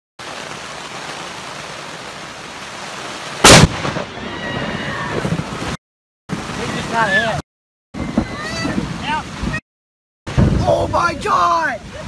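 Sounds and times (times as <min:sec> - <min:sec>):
heavy rain hissing: 0:00.2 - 0:07.4
deafening thunder crack: 0:03.4 - 0:05.5.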